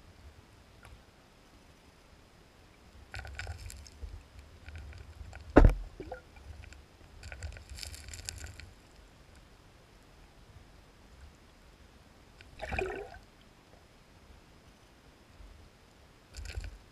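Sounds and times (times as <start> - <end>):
water splashing and sloshing: 12.4 - 13.3.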